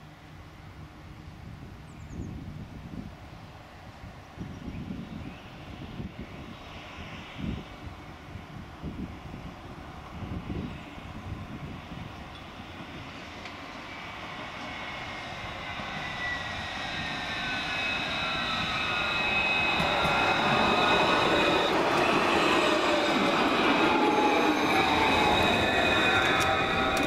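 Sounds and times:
tram passing: 11.0 - 27.0
high whining drive tones: 15.6 - 27.0.

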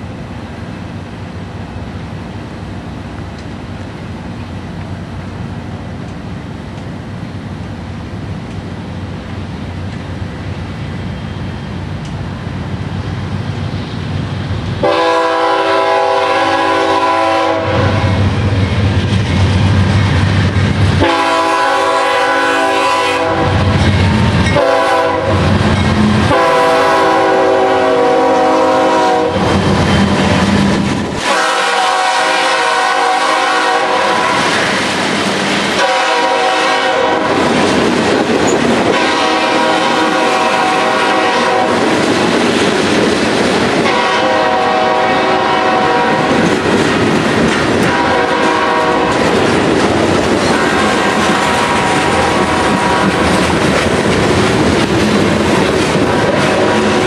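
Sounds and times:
train air horn blasts: 14.8 - 18.3, 21.0 - 23.8, 24.5 - 25.6, 26.2 - 29.6, 31.2 - 34.7, 35.8 - 37.5, 38.8 - 41.9, 43.8 - 46.4, 47.8 - 49.4, 50.4 - 53.4, 56.0 - 57.0
train wheels clattering over rails: 16.1 - 57.0.

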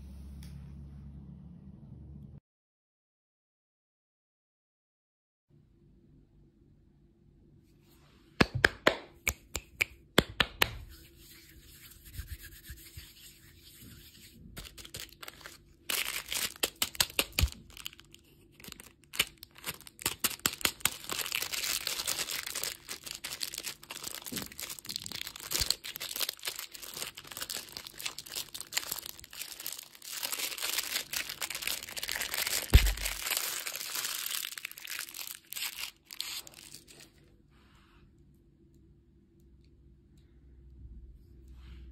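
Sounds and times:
plastic wrapper crinkling and tearing: 14.6 - 37.2.

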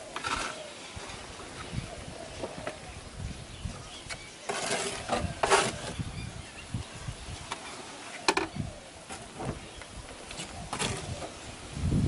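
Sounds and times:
trowel scraping wet cement: 0.1 - 0.7, 4.5 - 6.0.

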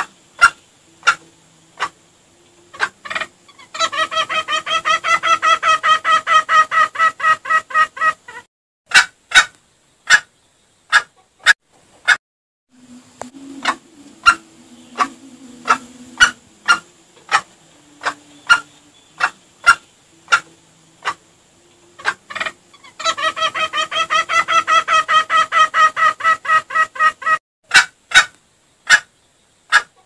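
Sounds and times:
junglefowl clucking: 0.0 - 10.3, 10.9 - 12.2, 12.8 - 29.1, 29.7 - 30.0.

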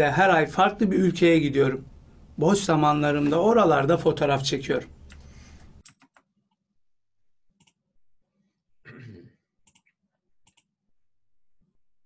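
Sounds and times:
computer mouse clicks: 5.0 - 6.2, 10.5 - 10.7.

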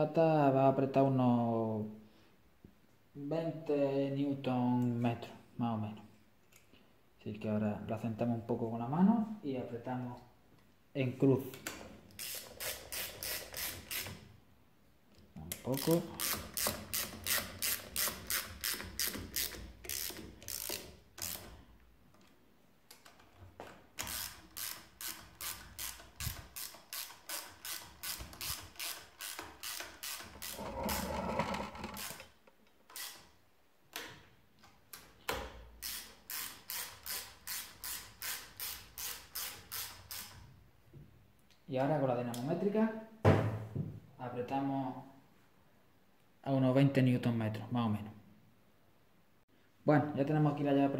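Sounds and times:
socket ratchet clicking: 12.1 - 14.2, 15.6 - 21.6, 24.0 - 30.6, 32.9 - 33.3, 35.8 - 40.4.

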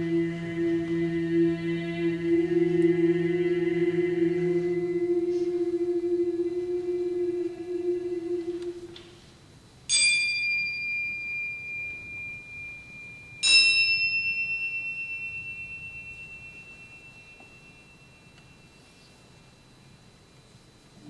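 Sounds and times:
antique cymbals ringing: 0.0 - 9.0, 9.8 - 20.9
held low note: 0.0 - 9.2.

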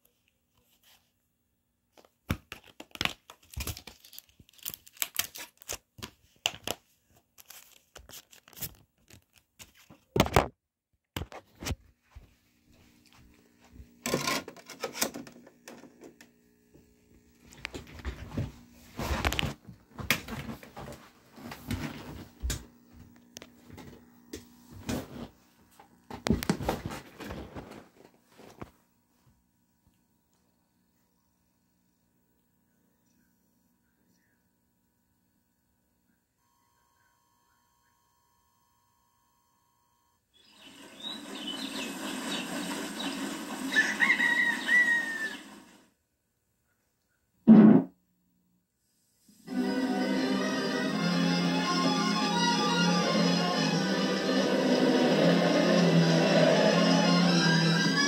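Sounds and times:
birds chirping: 40.4 - 45.6
running water: 40.6 - 45.8.

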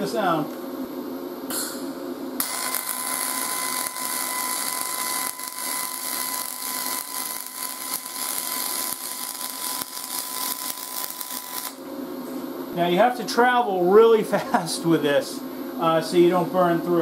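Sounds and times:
welding arc hissing: 1.8 - 11.9.

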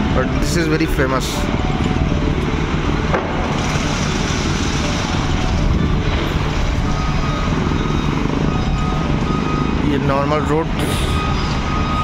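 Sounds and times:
road traffic: 0.0 - 12.0
wind buffeting microphone: 1.5 - 9.8.

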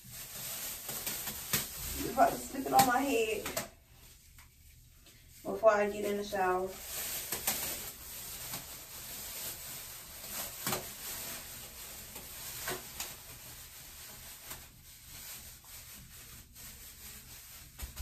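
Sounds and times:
plastic shower cap rustling: 0.0 - 18.0.

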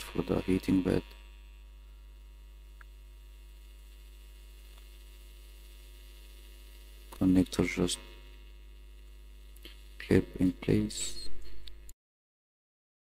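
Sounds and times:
electrical mains hum: 0.0 - 12.0
faint small ticks: 2.7 - 3.0, 3.6 - 5.0, 9.5 - 10.0.

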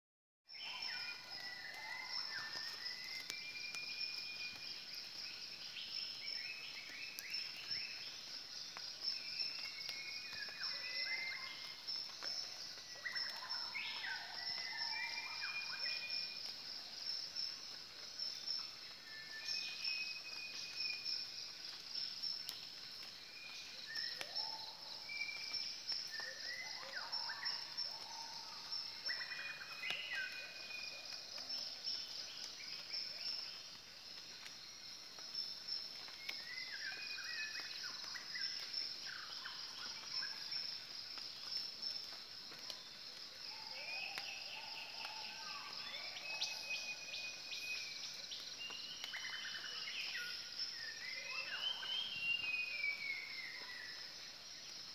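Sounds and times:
pulsing insect chorus: 0.6 - 54.9.

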